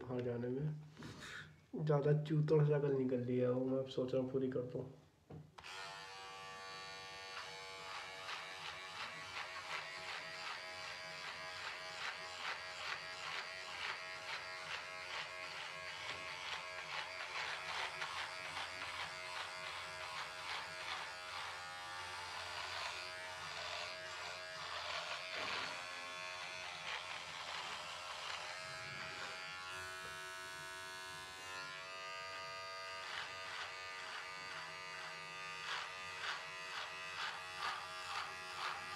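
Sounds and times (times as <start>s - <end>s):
beard trimmer buzzing: 5.6s - 38.9s.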